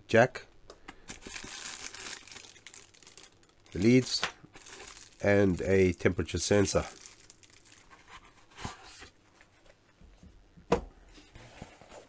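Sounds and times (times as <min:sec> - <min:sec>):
handling noise of objects: 0:00.9 - 0:10.3.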